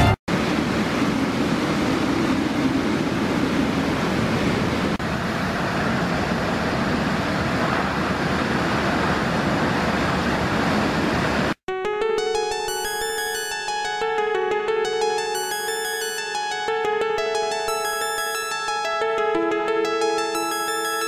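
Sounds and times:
bright electronic tune: 11.7 - 21.0.

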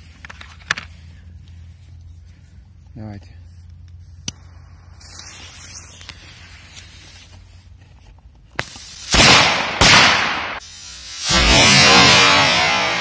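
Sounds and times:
firecracker bangs: 8.6 - 12.8.

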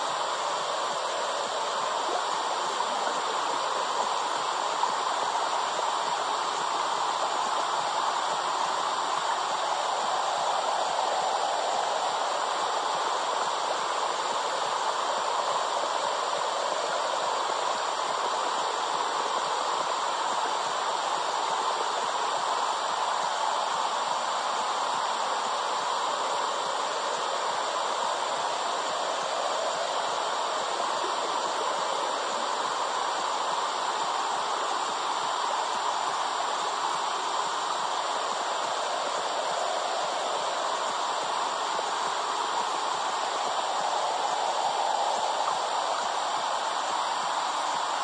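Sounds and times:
steady rushing hiss: 0.0 - 48.0.

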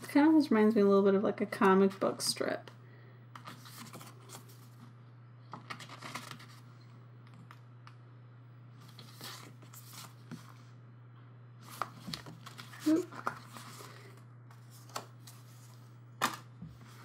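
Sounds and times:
steady low hum: 0.0 - 17.0
pages rustling: 3.4 - 4.9, 5.6 - 6.7, 8.8 - 10.7, 11.6 - 17.0.

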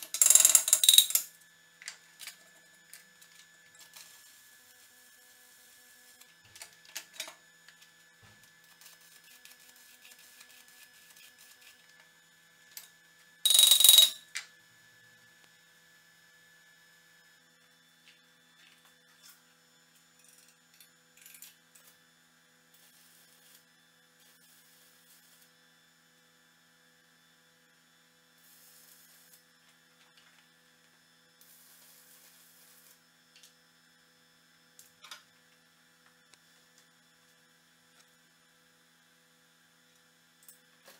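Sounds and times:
faint electrical hum: 0.0 - 26.2.

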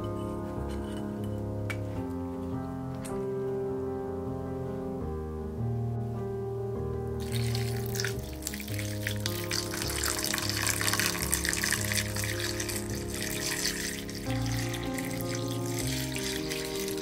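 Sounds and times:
background music: 0.0 - 17.0
water pouring into a pot: 7.2 - 17.0.

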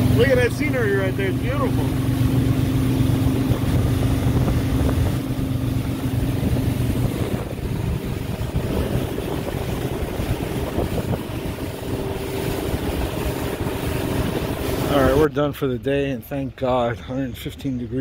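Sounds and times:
rushing wind and water: 0.0 - 16.9
motorboat engine drone: 0.0 - 18.0.

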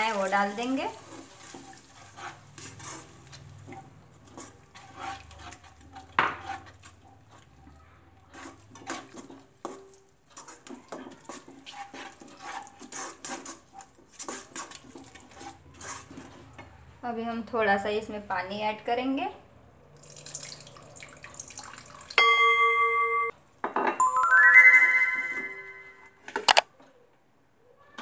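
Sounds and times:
spatula scraping a pan: 0.0 - 16.8.

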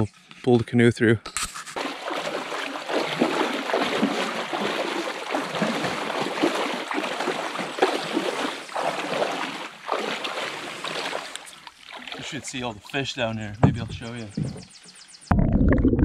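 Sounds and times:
water splashing while wading: 1.5 - 14.0.

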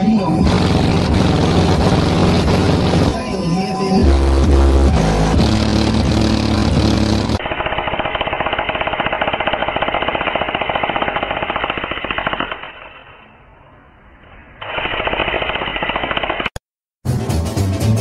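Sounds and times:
electric jackhammer pounding: 0.4 - 3.2, 4.2 - 12.7
music: 3.2 - 7.0, 17.0 - 18.0.

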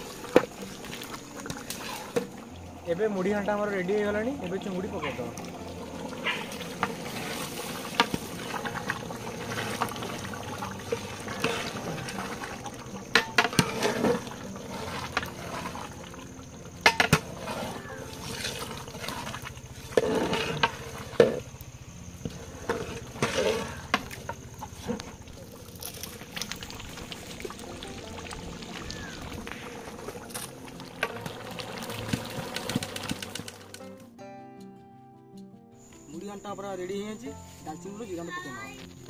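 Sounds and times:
curry bubbling in a pot: 0.0 - 33.6.

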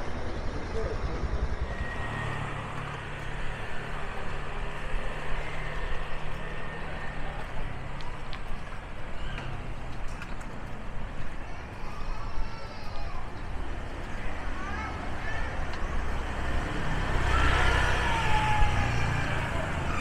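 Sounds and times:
vehicle engine humming: 0.0 - 12.2.

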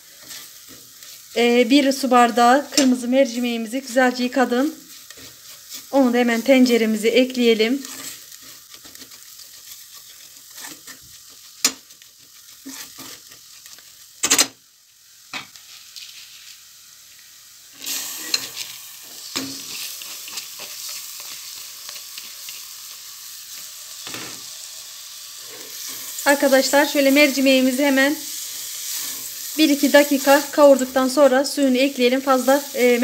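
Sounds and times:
spatula scraping pot: 0.0 - 1.9, 4.2 - 14.1, 17.8 - 22.7
onions frying sizzle: 0.0 - 33.0.

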